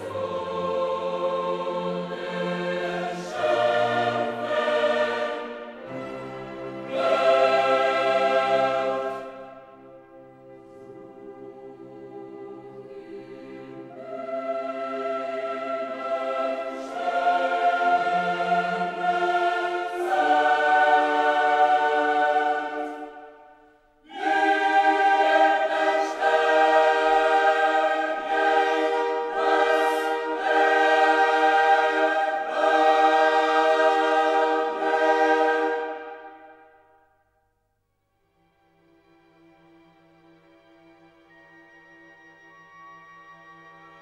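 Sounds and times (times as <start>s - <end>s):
choir singing held chords: 0.0s - 37.3s.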